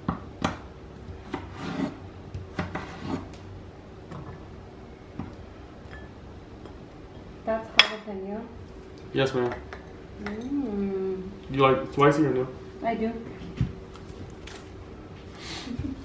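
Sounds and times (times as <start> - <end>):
knife scraping on board: 1.2 - 3.4.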